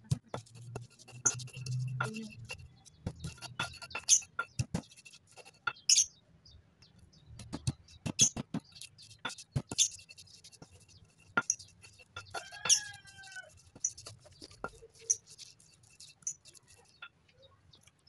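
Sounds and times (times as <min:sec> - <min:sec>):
gritty scraping: 0:00.0 - 0:06.1, 0:07.4 - 0:17.1
stone pestle knocking in mortar: 0:11.3 - 0:13.0.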